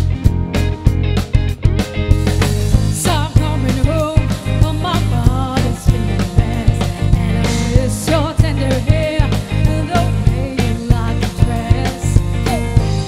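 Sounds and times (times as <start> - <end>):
live pop band playing: 0.0 - 13.0
steady drum beat: 0.0 - 13.0
woman singing: 2.9 - 13.0.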